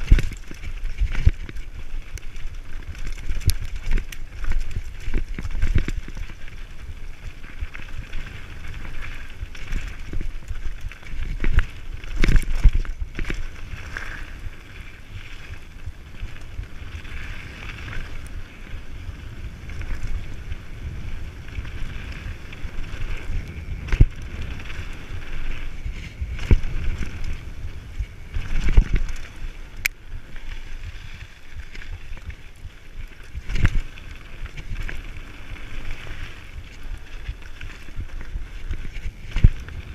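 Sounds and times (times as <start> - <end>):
bike frame rattling: 0.0 - 39.9
bike tyres rolling on gravel: 0.0 - 39.9.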